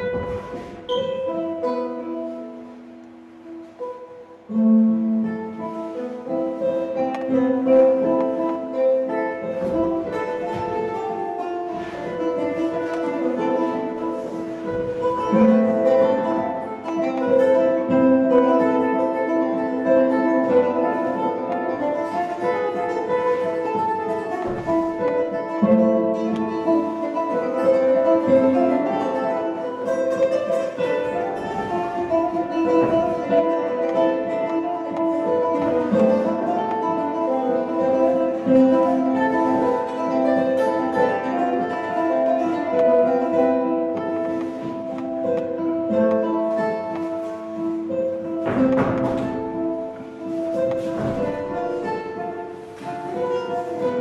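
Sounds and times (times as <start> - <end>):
plucked strings: 0.0 - 54.0.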